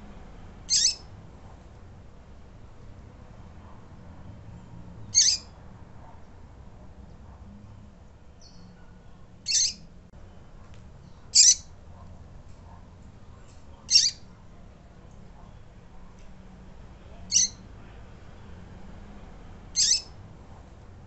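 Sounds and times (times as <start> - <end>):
bird calling: 0.7 - 1.1, 5.2 - 5.5, 9.5 - 9.8, 11.3 - 11.7, 13.9 - 14.3, 17.3 - 17.6, 19.8 - 20.2.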